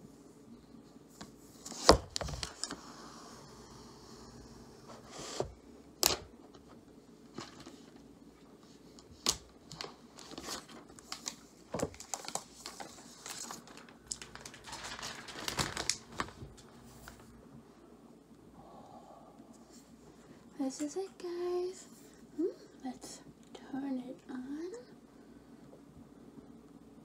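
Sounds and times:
plastic film crinkling: 9.2s - 17.3s.

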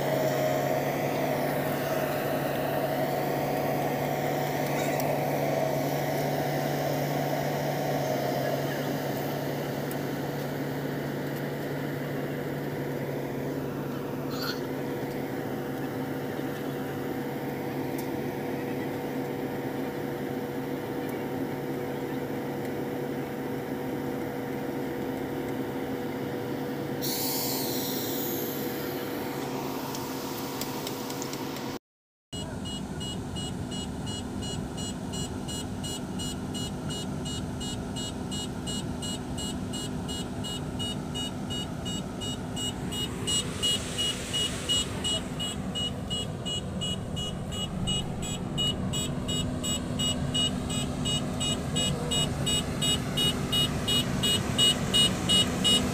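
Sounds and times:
road paver engine running: 0.0s - 31.8s, 32.4s - 55.9s
rapid electronic beeping: 32.7s - 55.9s
brief hiss: 43.0s - 46.0s.

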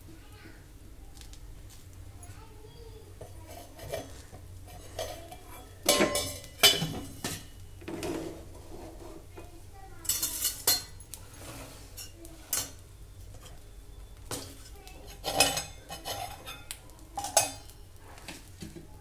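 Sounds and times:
metal utensils clinking and scraping: 3.2s - 13.6s, 14.3s - 18.8s.

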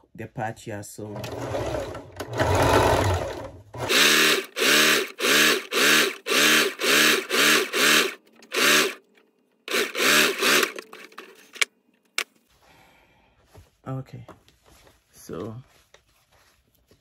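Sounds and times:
sewing machine motor whirring: 1.2s - 9.0s, 9.7s - 11.7s.

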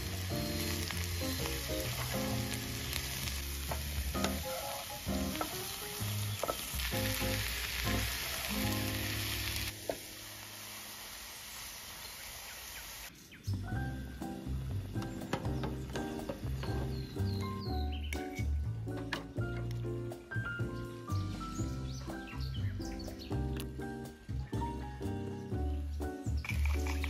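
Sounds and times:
background music: 0.0s - 10.2s, 13.4s - 27.0s
mushrooms and onion sizzling: 0.0s - 19.4s.

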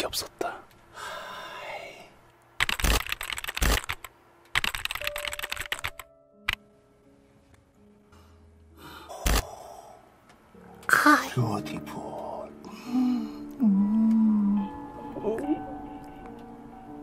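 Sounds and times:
rapid crackling clicks: 2.3s - 6.6s.

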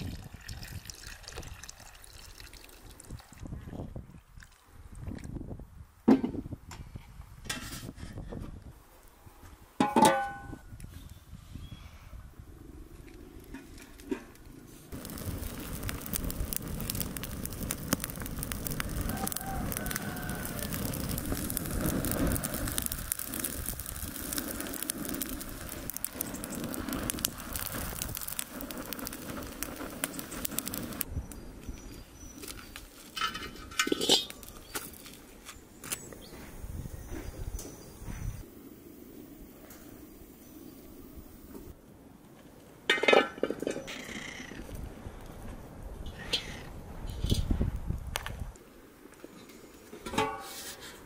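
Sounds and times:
campfire crackling and popping: 0.0s - 3.4s, 12.6s - 36.3s, 44.6s - 50.4s
quiet outdoor background: 0.0s - 51.0s
low rush of flames: 10.7s - 43.2s, 44.6s - 51.0s.

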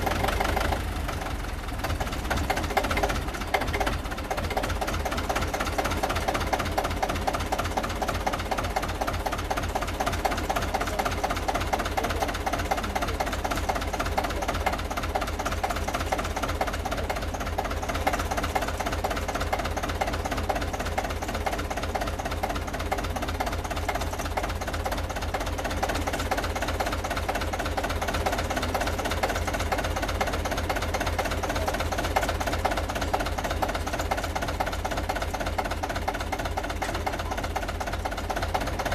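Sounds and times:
tractor diesel engine idling: 0.0s - 38.9s.

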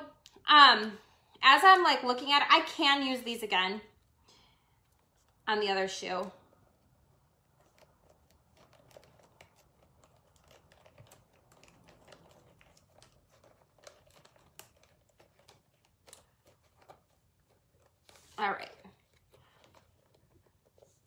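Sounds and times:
light rustles of materials: 3.8s - 21.0s.

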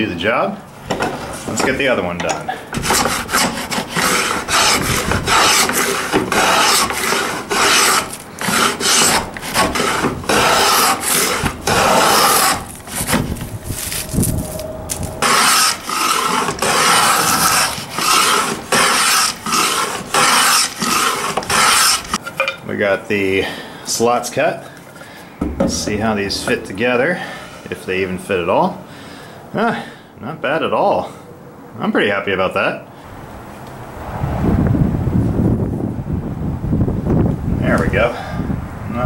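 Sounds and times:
plane rasping on wood: 2.7s - 14.0s, 15.2s - 22.2s.

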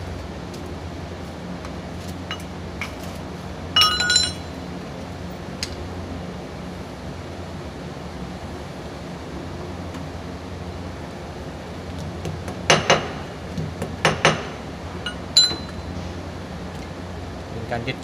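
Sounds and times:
steady low hum: 0.0s - 18.0s
ringing metal clink: 3.8s - 4.6s, 15.1s - 15.9s.

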